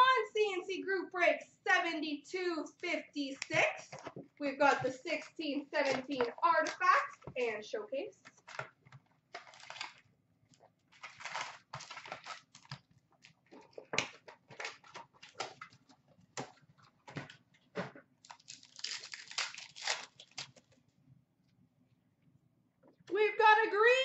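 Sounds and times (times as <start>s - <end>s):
card pack wrappers crinkling: 8.3s - 17.3s, 18.2s - 20.8s.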